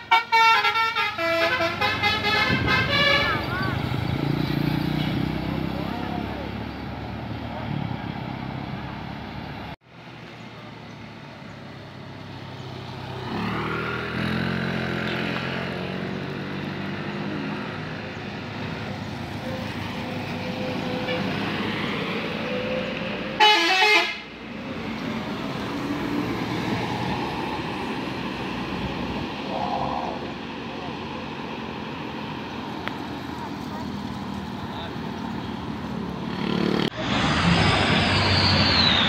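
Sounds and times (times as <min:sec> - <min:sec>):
musical bus horn warbling: 0:00.0 - 0:03.7, 0:23.4 - 0:24.3
bus engine pulling: 0:00.0 - 0:39.0.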